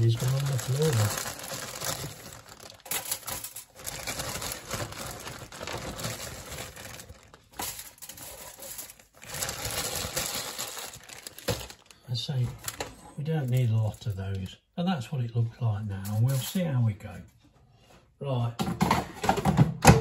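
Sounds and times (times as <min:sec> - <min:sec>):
aluminium foil crinkling: 0:00.0 - 0:14.5.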